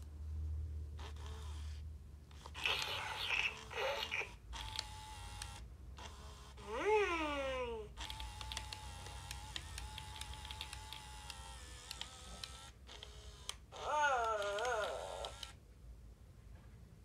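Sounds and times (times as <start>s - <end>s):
faint toy motor whirring: 1.0s - 15.6s
small mechanical clicks: 2.4s - 6.6s, 8.0s - 15.6s
electronic toy calls: 2.6s - 4.4s.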